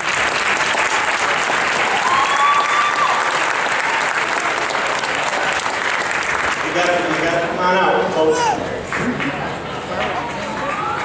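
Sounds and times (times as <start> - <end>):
crowd applauding: 0.0 - 7.5, 8.8 - 11.0
person cheering: 2.0 - 3.3.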